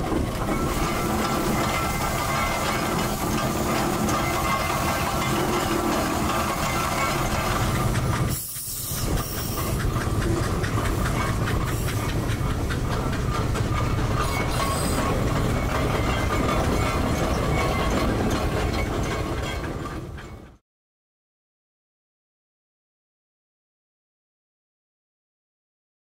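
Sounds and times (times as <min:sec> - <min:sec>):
steam engine hissing and chuffing: 0:00.0 - 0:20.6.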